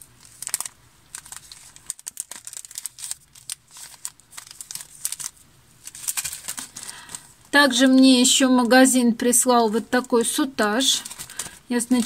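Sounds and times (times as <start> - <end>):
packaging crinkling: 0.0 - 8.0, 10.8 - 12.0.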